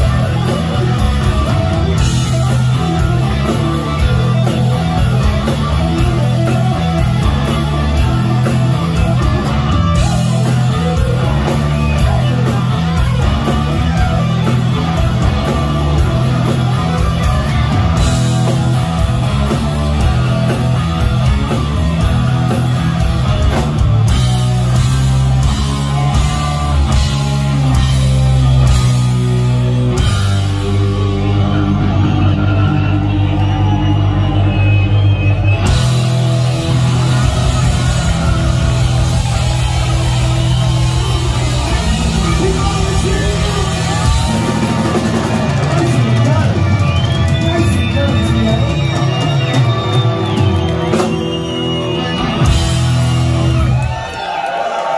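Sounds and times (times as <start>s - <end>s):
bass guitar: 0.0s - 54.4s
distorted electric guitars: 0.0s - 54.9s
drum kit: 0.0s - 54.9s.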